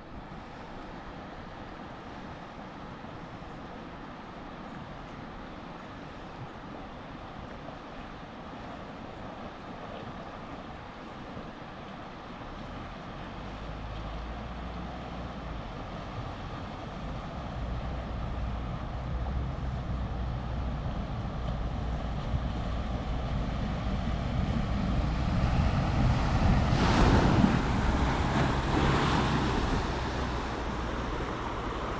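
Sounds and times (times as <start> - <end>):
rushing river water: 0.0 - 31.9
wheels splashing water: 0.0 - 31.9
vehicle engine: 13.3 - 31.9.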